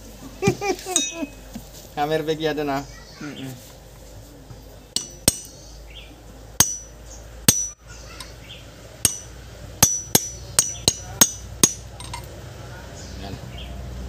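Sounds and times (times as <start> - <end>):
hammer striking steel: 1.0 - 1.3, 5.0 - 5.6, 6.6 - 8.3, 9.0 - 12.3.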